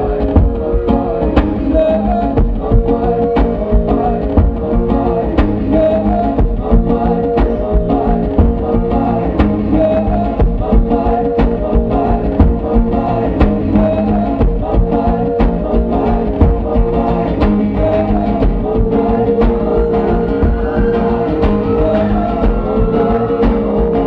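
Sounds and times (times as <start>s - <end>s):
acoustic guitar strummed hard: 0.0s - 24.0s
long held notes: 17.6s - 24.0s.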